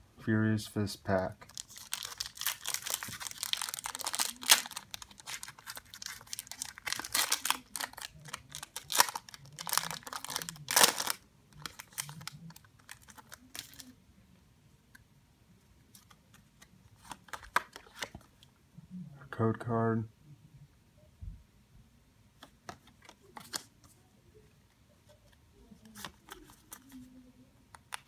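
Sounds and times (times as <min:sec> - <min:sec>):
foil wrapper crinkling and tearing: 0:01.4 - 0:13.9.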